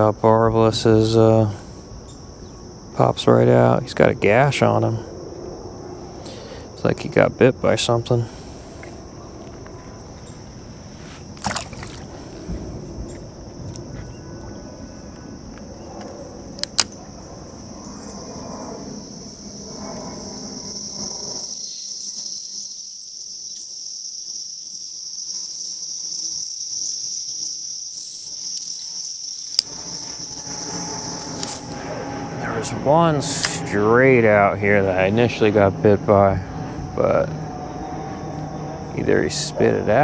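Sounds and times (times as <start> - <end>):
high-pitched insect chorus: 0.0 - 40.0
sharp clicks: 16.6 - 17.0.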